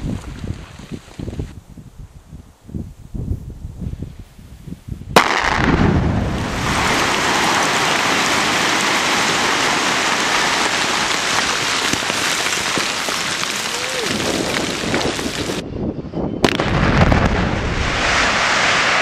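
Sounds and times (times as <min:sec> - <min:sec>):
blast sharp crack: 0:05.2 - 0:08.6, 0:16.4 - 0:19.0.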